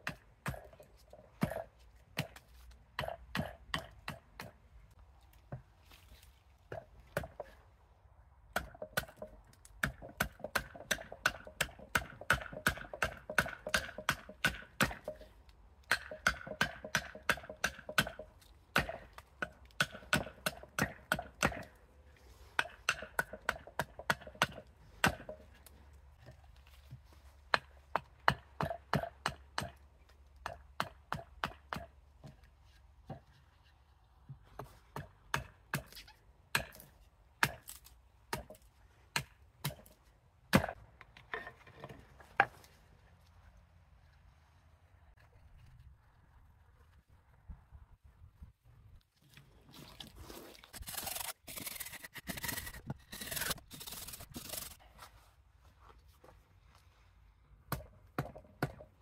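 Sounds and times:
axe chopping wood: 0:00.0 - 0:00.8, 0:01.4 - 0:02.4, 0:03.0 - 0:04.6, 0:08.5 - 0:15.3, 0:15.9 - 0:21.7, 0:22.6 - 0:25.5, 0:27.5 - 0:29.8, 0:30.4 - 0:32.4, 0:34.6 - 0:40.8, 0:57.7 - 0:58.9.

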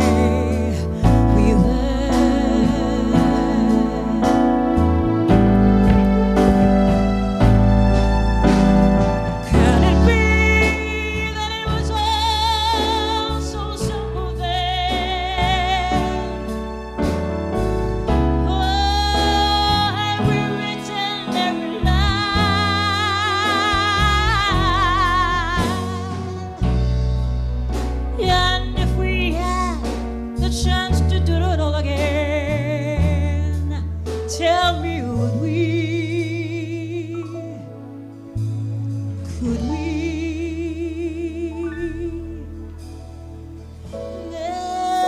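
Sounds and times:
woman singing soul song: 0:00.0 - 0:05.1, 0:09.4 - 0:16.8, 0:18.4 - 0:26.8, 0:28.2 - 0:37.6, 0:39.3 - 0:42.8, 0:44.2 - 0:45.0
instrumental backing with bass: 0:00.0 - 0:45.0.

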